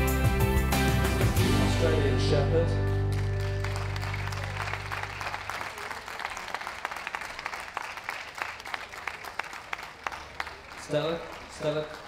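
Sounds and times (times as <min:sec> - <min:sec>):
background music: 0:00.0 - 0:05.5
audience applauding: 0:02.9 - 0:12.0.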